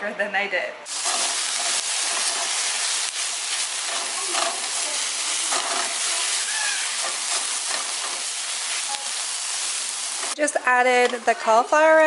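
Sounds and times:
spatula scraping a pan: 0.9 - 10.4
vegetables sizzling in a pan: 0.9 - 12.0.

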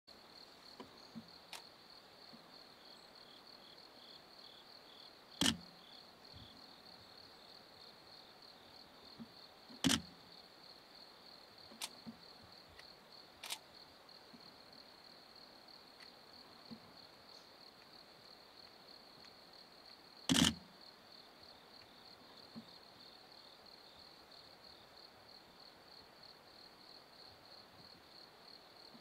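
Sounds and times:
sharp clicks: 5.4 - 5.7, 9.8 - 10.1, 13.4 - 13.6, 20.3 - 20.6.

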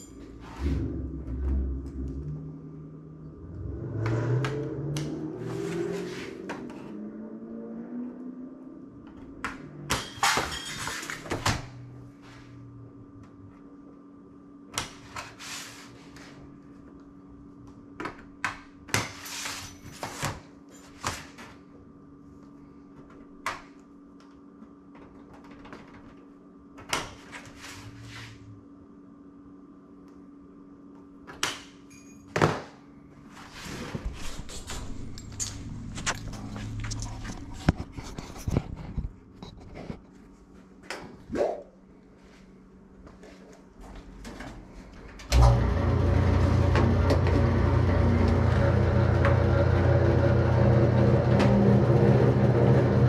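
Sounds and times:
steady hum: 0.0 - 7.3, 32.8 - 53.0.

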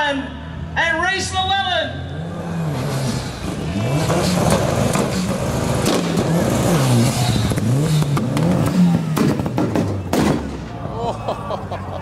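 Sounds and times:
car engine revving hard: 2.2 - 10.0
exhaust cracks: 2.8 - 10.8.

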